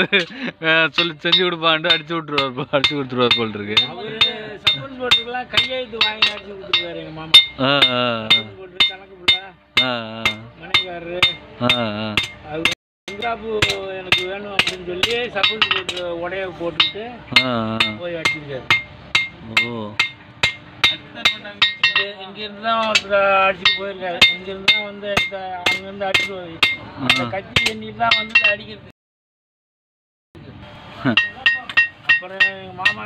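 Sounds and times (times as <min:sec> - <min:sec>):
person talking: 0:00.0 - 0:09.0
hammer striking steel on anvil: 0:00.9 - 0:16.1, 0:16.8 - 0:22.2, 0:22.8 - 0:28.6, 0:31.1 - 0:33.0.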